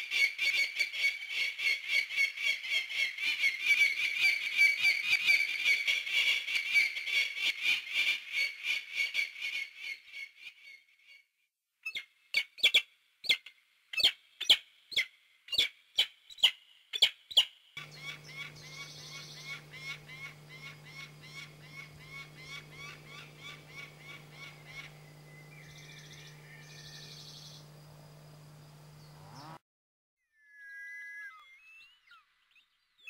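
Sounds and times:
falcon calling: 17.8s - 28.9s
steady low hum: 17.8s - 29.6s.

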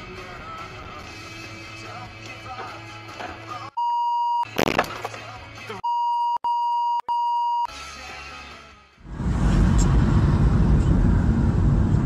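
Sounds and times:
high censor bleep: 3.8s - 4.5s, 5.8s - 7.7s
road noise with low hum: 9.0s - 12.0s.

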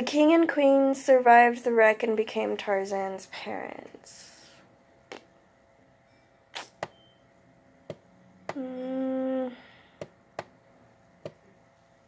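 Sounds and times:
woman humming: 8.4s - 10.0s.

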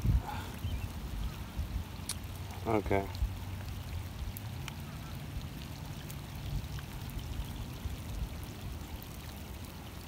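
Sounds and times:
faint ticks: 4.6s - 4.8s.

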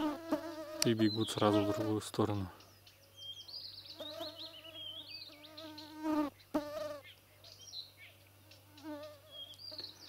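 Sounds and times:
flying insect buzzing: 0.0s - 2.0s, 3.9s - 7.1s, 8.5s - 10.0s
small birds chirping: 0.0s - 10.0s.

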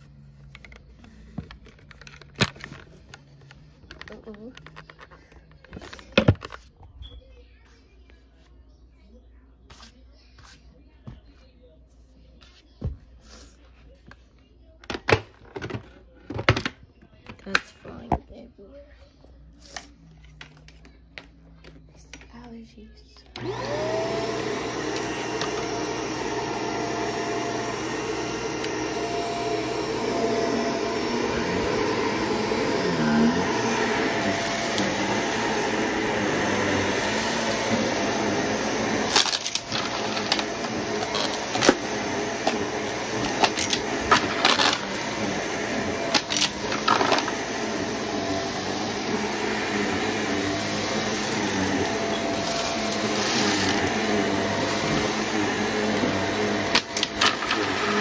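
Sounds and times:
vacuum cleaner motor running: 23.3s - 58.0s.

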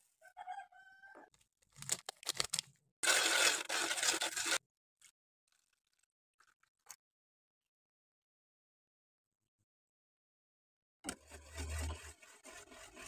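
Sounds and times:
whisk scraping sugar in a saucepan: 3.0s - 4.6s, 11.1s - 13.0s.

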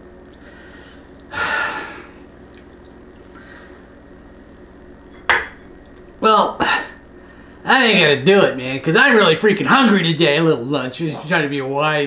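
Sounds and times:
faint room hum: 0.0s - 12.0s
man exhaling through nose: 0.4s - 2.2s.

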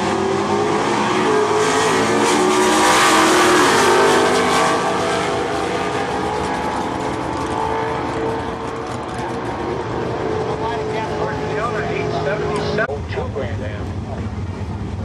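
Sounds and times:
drag cars passing at full throttle: 0.0s - 15.0s.

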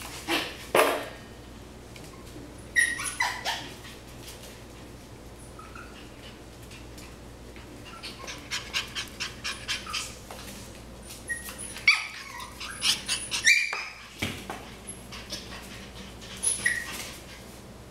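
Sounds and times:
puppies yipping and whimpering: 2.7s - 3.9s, 5.4s - 6.3s, 7.8s - 10.2s, 11.2s - 14.2s, 14.9s - 17.4s.

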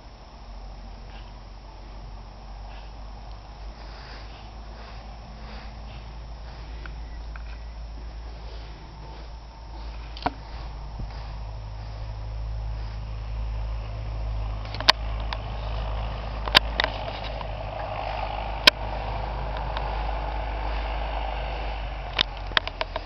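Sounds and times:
wind buffeting microphone: 3.7s - 23.0s
sharp clicks: 14.6s - 18.9s, 22.1s - 23.0s.

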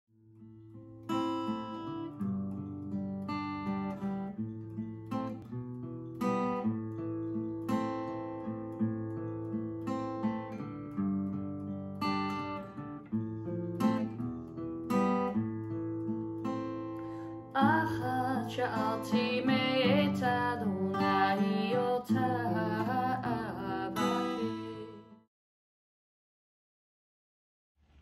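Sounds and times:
acoustic guitar chords: 0.2s - 25.3s
woman singing: 17.5s - 25.2s.

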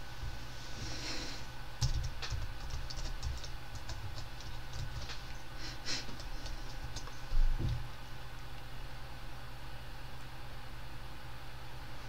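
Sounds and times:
steady low hum: 0.0s - 12.0s
keyboard typing: 1.8s - 7.4s.

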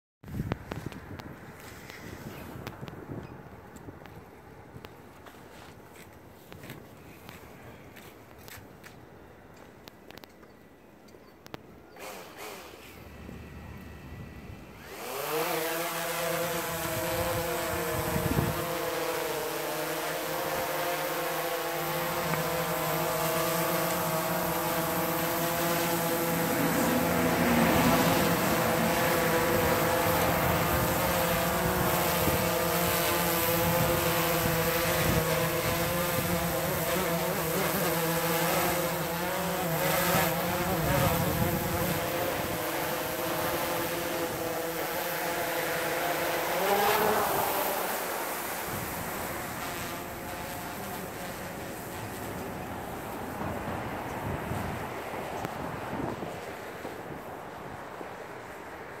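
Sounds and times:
drone propellers buzzing whine: 12.2s - 58.5s.

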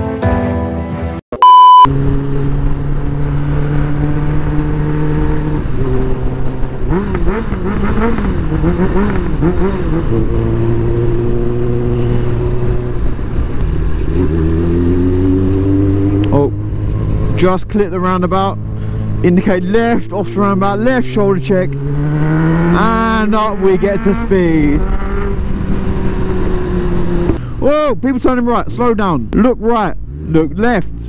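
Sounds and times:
loud steady beep: 1.4s - 1.9s
motorcycle engine running: 1.9s - 27.4s.

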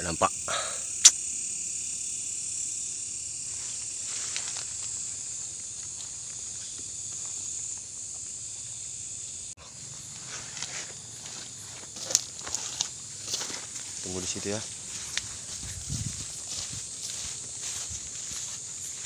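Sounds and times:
crickets chirping: 0.0s - 19.0s
faint rustles and scrapes: 10.2s - 18.0s.

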